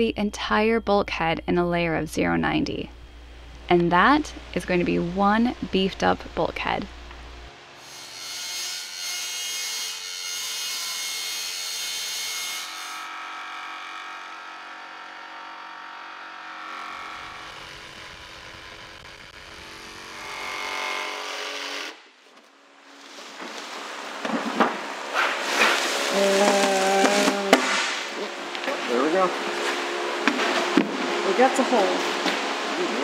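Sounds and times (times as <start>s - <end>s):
circular saw cutting: 7.8s - 22.0s.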